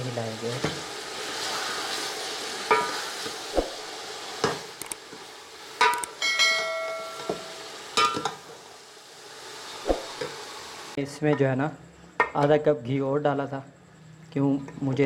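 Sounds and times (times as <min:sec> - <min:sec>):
faint sizzle: 0:00.0 - 0:15.0
spoon knocking on ringing pot: 0:05.8 - 0:08.3.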